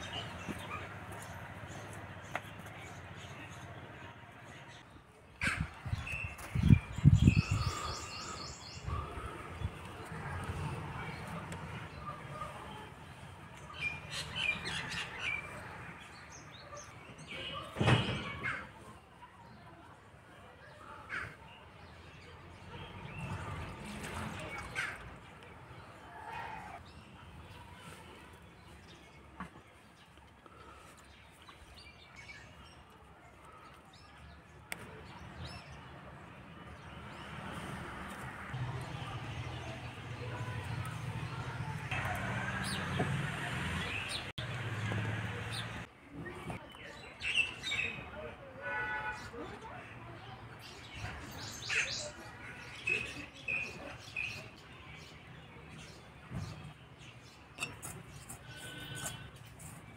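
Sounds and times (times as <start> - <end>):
small birds chirping: 0.0 - 17.8
birds chirping: 0.0 - 18.8, 20.8 - 48.2.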